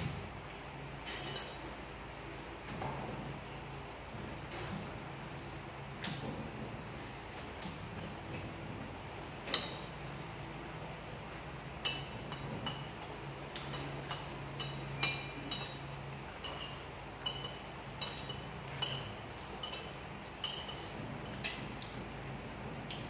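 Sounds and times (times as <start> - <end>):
spoons clinking on ceramic bowls: 16.4 - 20.8.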